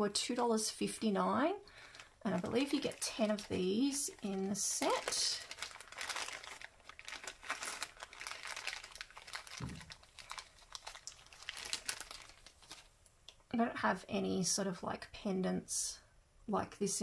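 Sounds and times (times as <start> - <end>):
plastic bag crinkling: 1.7 - 13.0
soft low thump: 9.6 - 9.9.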